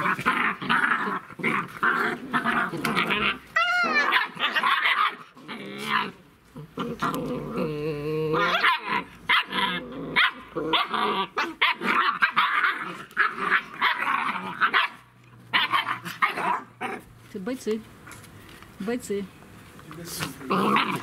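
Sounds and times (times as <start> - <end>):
puppies growling and barking: 0.0 - 17.2, 20.3 - 21.0.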